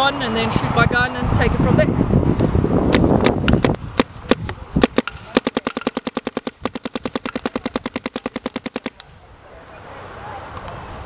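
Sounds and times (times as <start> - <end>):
paintball marker firing: 2.9 - 9.3.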